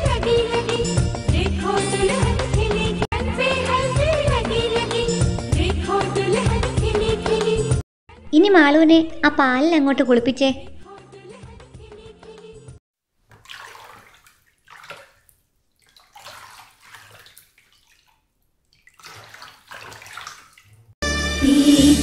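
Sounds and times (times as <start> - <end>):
milk pouring and splashing: 13.2 - 21.0.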